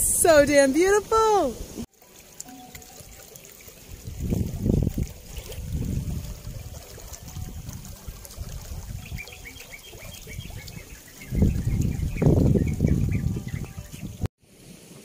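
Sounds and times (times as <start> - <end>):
wind buffeting microphone: 3.9 - 14.3.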